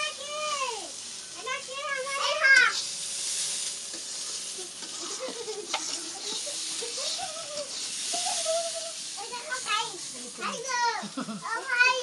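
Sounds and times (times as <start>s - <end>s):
steady hiss: 0.0s - 12.0s.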